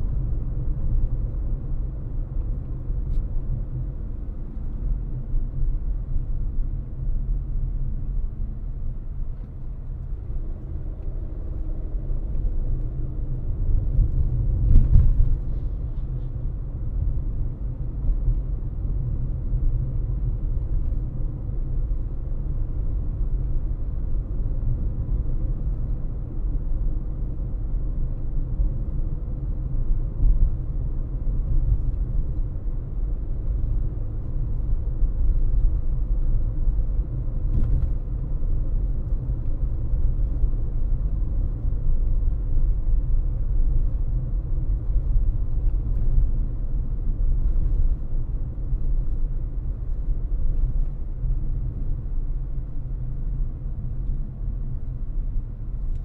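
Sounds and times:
car driving low rumble: 0:00.0 - 0:56.0.

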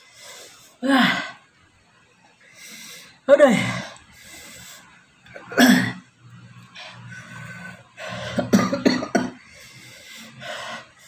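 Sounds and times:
man coughing: 0:08.4 - 0:09.4.

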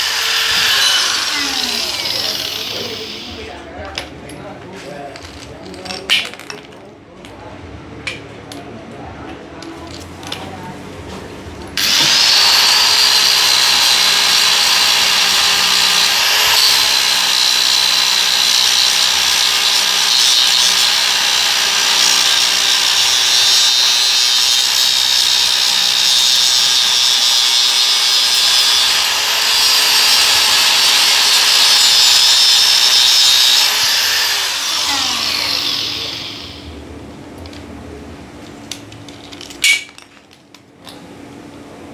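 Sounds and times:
angle grinder grinding steel: 0:00.0 - 0:03.6, 0:11.8 - 0:36.8.

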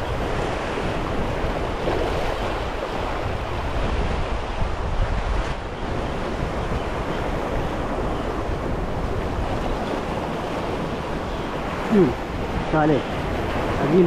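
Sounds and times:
sea surf washing on shore: 0:00.0 - 0:14.0
wind rumbling on microphone: 0:00.0 - 0:14.0.

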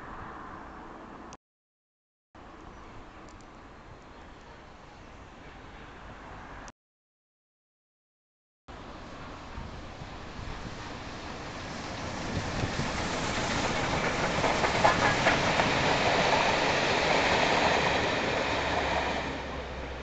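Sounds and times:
steam train passing: 0:08.8 - 0:20.0
train wheel clicks: 0:13.3 - 0:16.6.

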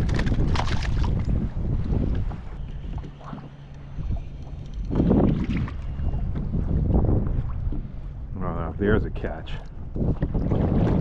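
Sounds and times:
water splashing: 0:00.0 - 0:01.3, 0:02.9 - 0:07.8, 0:10.0 - 0:11.0
wind rumbling on microphone: 0:00.0 - 0:11.0.

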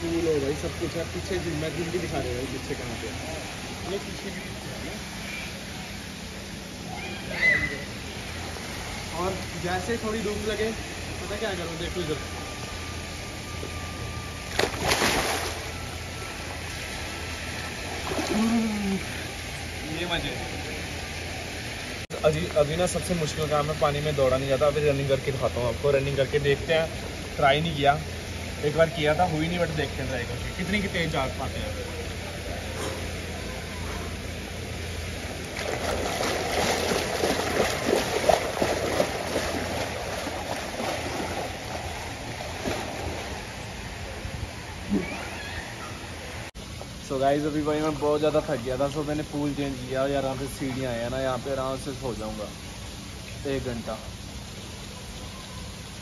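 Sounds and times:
pool water splashing: 0:00.0 - 0:56.0
steady low hum: 0:00.0 - 0:56.0
water splashing and sloshing: 0:12.1 - 0:19.8, 0:32.6 - 0:51.9
body smacking water: 0:14.5 - 0:15.6.

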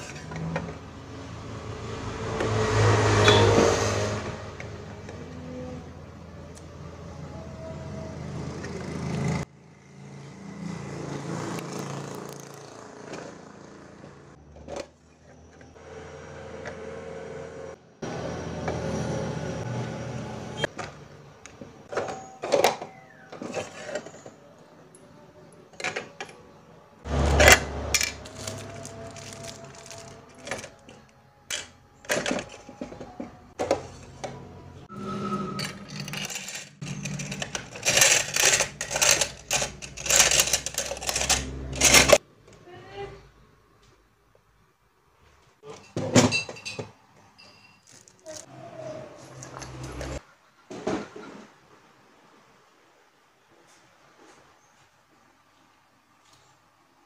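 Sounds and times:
metal clips clinking: 0:35.6 - 0:42.2.

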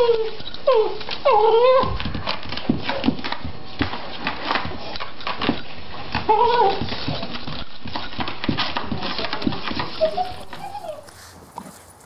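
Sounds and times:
dog whining: 0:00.0 - 0:03.1, 0:05.9 - 0:07.7, 0:09.7 - 0:11.7
dog claws scraping on tile: 0:00.0 - 0:12.0.

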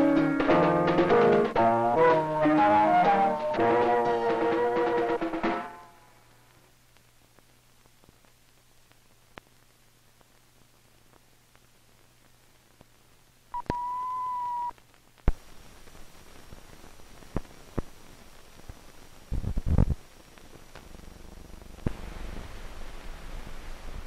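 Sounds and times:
old film soundtrack hiss: 0:00.0 - 0:24.0
crackle: 0:05.8 - 0:24.0
steady electronic beep: 0:13.6 - 0:14.7
clicks and pops: 0:13.6 - 0:15.4.

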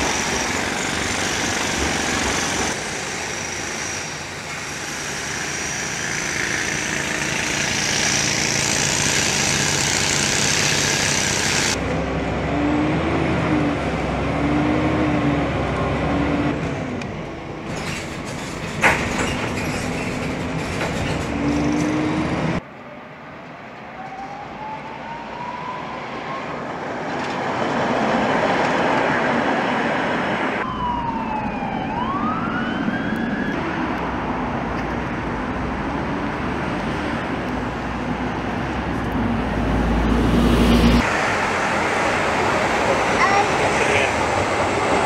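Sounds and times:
tram rumbling past: 0:00.0 - 0:24.2, 0:25.1 - 0:32.4, 0:33.6 - 0:45.0
street traffic: 0:00.0 - 0:45.0
siren wailing: 0:23.8 - 0:26.8, 0:30.6 - 0:33.6.

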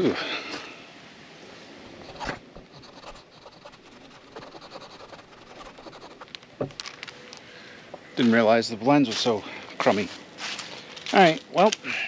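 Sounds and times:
hands handling parts and tools: 0:06.2 - 0:07.5.

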